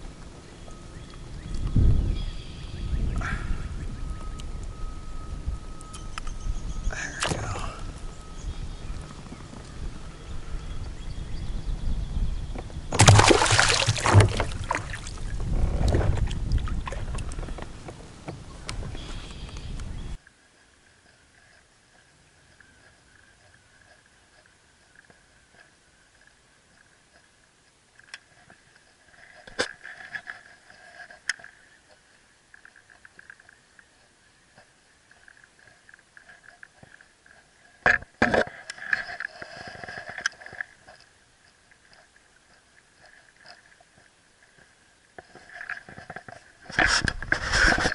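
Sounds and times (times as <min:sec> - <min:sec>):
rustle: 0:00.0 - 0:47.9
fish splashing into water: 0:12.9 - 0:15.3.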